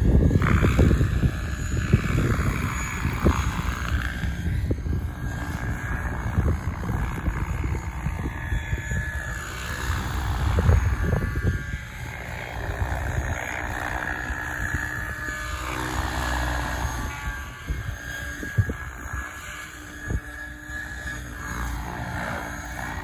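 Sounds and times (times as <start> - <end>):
rc helicopter rotor and motor whine: 0.0 - 23.0.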